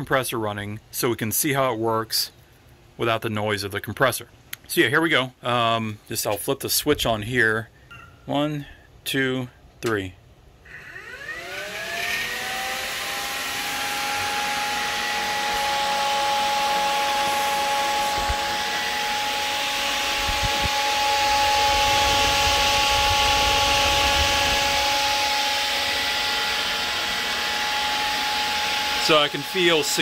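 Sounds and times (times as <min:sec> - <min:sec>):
electric fan whine: 0:10.6 - 0:30.0
low airflow buffeting: 0:14.0 - 0:30.0.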